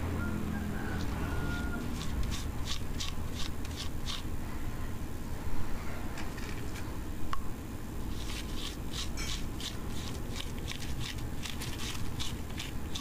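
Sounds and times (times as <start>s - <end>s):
low steady rumble: 0.0s - 13.0s
spatula scraping paste: 1.0s - 4.3s, 8.1s - 13.0s.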